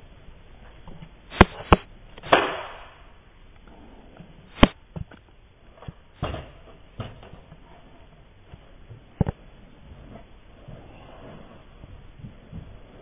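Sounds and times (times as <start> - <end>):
hissing burst: 1.3 - 2.6.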